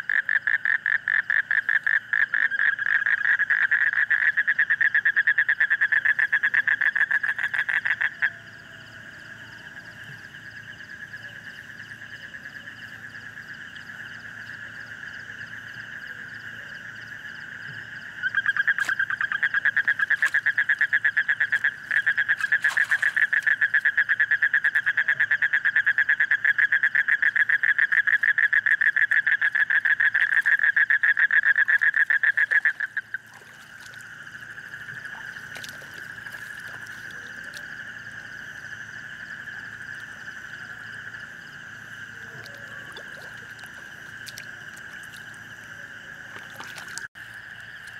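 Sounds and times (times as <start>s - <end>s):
frog chorus calling: 0.0s - 47.9s
frog loud fast pulsing call: 18.0s - 25.4s.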